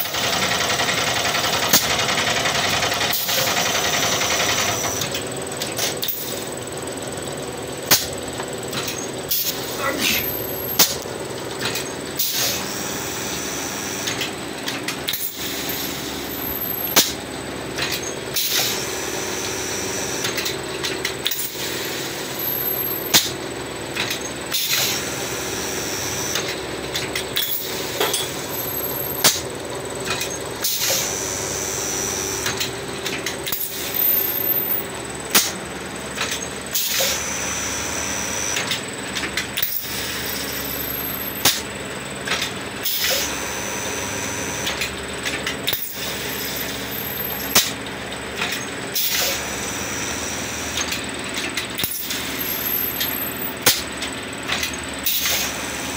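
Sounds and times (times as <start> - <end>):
machine hiss: 0.0 - 5.2, 5.8 - 6.6, 9.2 - 11.0, 12.1 - 17.3, 18.3 - 20.5, 21.2 - 23.4, 24.5 - 26.5, 27.3 - 29.5, 30.6 - 32.8, 33.4 - 35.6, 36.6 - 41.8, 42.7 - 44.8, 45.6 - 47.8, 48.4 - 55.9
steady machine hum: 0.0 - 55.9.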